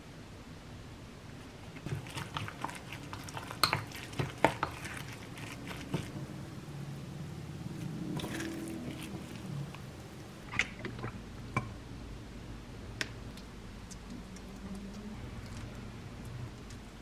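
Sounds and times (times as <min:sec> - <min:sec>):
spoon stirring wet mix in bowl: 0:01.4 - 0:06.6, 0:07.7 - 0:11.8.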